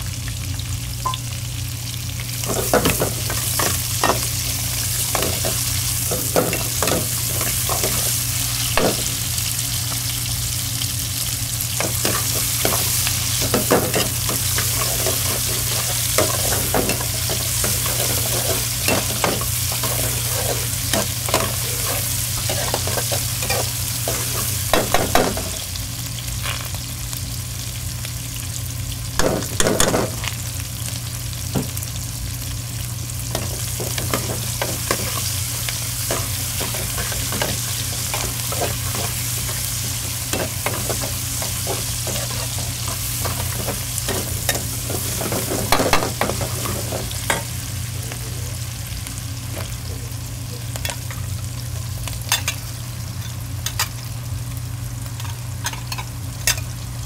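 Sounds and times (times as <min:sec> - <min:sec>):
food sizzling in a wok: 0:00.0 - 0:57.0.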